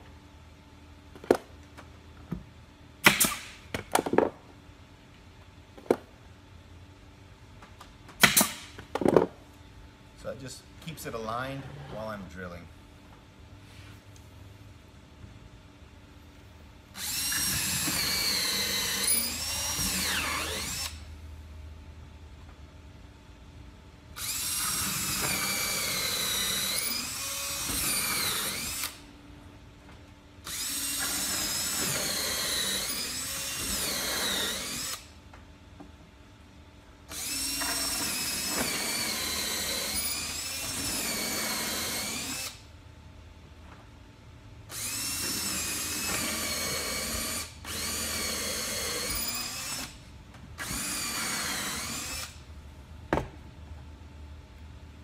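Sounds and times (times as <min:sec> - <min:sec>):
cordless drill boring: 0:17.0 - 0:21.0, 0:24.2 - 0:29.0, 0:30.4 - 0:35.1, 0:37.1 - 0:42.6, 0:44.7 - 0:50.0, 0:50.6 - 0:52.4.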